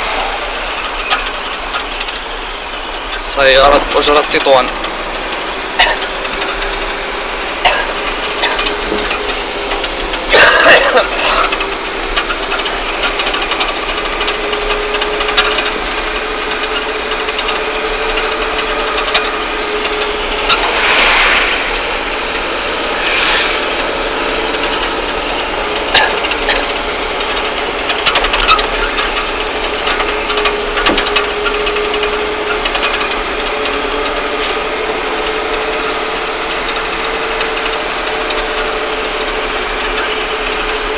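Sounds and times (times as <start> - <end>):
rushing swell: 0.0 - 40.9
vehicle engine running: 0.0 - 40.9
rattles and knocks: 7.7 - 21.4, 24.0 - 34.2.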